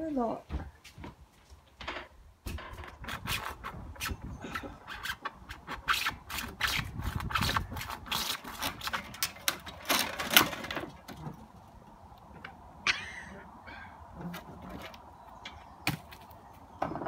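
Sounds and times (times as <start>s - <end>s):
hand saw cutting wood: 3.0s - 10.6s.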